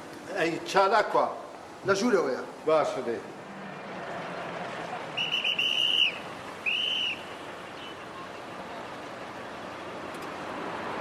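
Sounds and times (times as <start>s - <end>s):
street traffic: 0.0s - 11.0s
whistle blasts: 5.2s - 8.0s.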